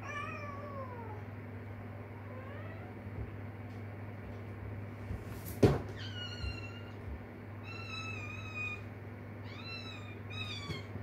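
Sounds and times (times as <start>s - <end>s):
kitten meowing: 7.6s - 8.8s, 9.4s - 10.9s.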